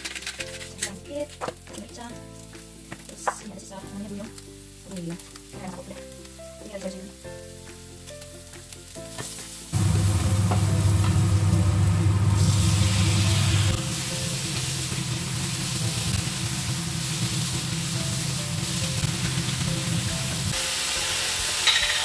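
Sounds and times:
chicken sizzling in frying pan: 0:00.0 - 0:22.0
loud low rumble: 0:09.8 - 0:17.9.

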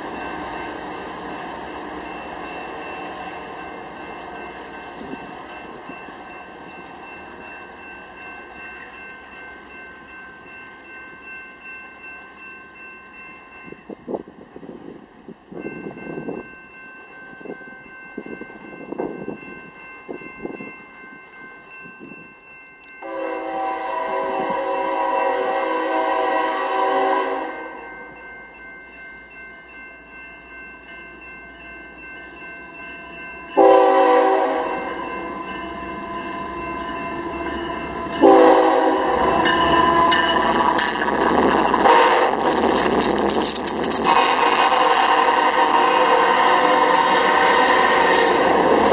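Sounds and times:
locomotive engines and wheels: 0:00.0 - 0:48.9
locomotive air horn blasts: 0:23.0 - 0:27.9, 0:33.6 - 0:35.3, 0:38.1 - 0:40.4, 0:41.6 - 0:43.0, 0:43.9 - 0:48.9.

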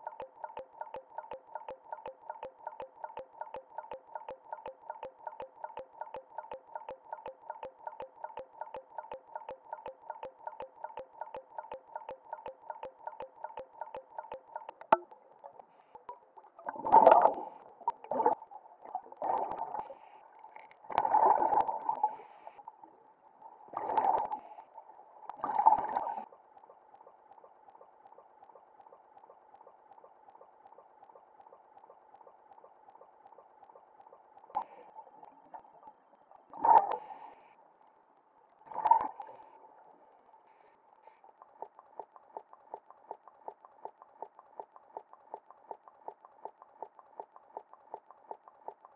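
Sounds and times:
faint fast even ticking: 0:00.0 - 0:16.2.

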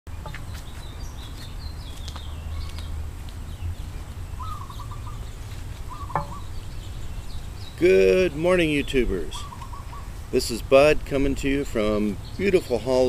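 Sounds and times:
birds chirping and calling: 0:00.1 - 0:13.0.

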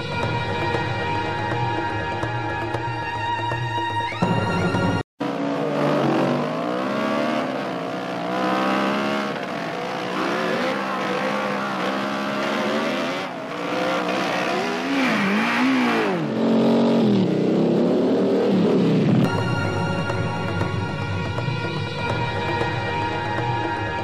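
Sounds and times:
dirt bike engine revving: 0:05.2 - 0:19.3.

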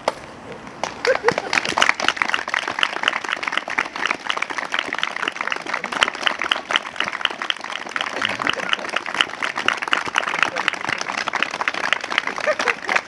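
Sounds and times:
people applauding: 0:00.8 - 0:13.0.

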